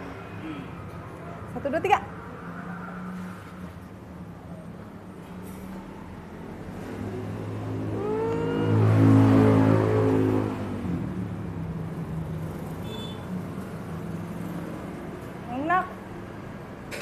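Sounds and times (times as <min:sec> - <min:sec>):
passing vehicle engine accelerating: 0:06.4 - 0:12.4.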